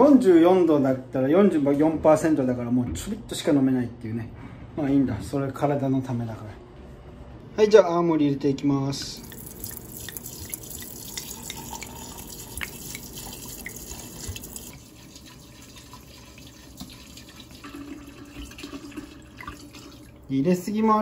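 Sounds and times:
liquid pouring from bottle: 0:09.2 - 0:20.3.

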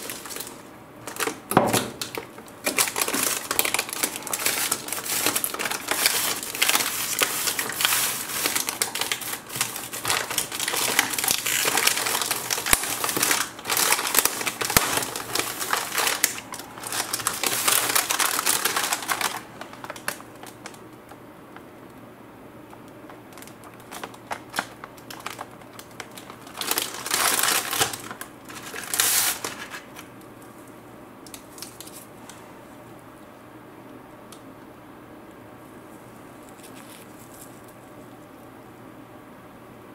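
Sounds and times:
plastic wrapper crinkling: 0:00.0 - 0:21.7, 0:22.7 - 0:30.2, 0:31.2 - 0:32.1, 0:36.4 - 0:38.2.

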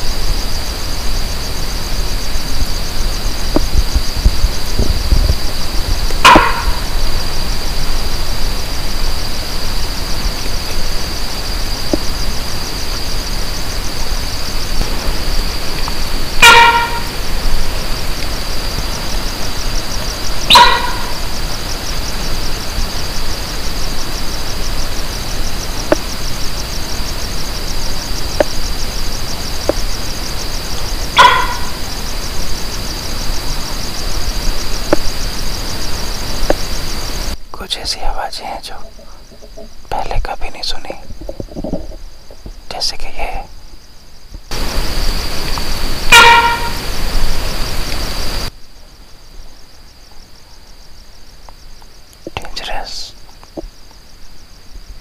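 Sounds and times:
night insects chirring: 0:00.0 - 0:55.0
short pitched animal calls: 0:06.2 - 0:07.1, 0:16.4 - 0:17.2, 0:20.4 - 0:21.4, 0:31.1 - 0:32.0, 0:46.0 - 0:46.8.

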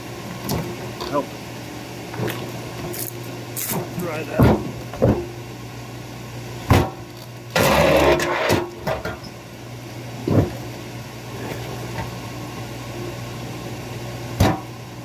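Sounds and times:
log splitter motor hum: 0:00.0 - 0:15.0.

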